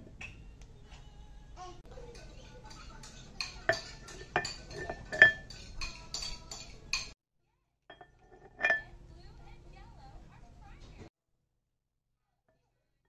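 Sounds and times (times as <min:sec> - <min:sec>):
strawberries clinking into glass dish: 0:02.1 - 0:07.2, 0:07.9 - 0:08.9.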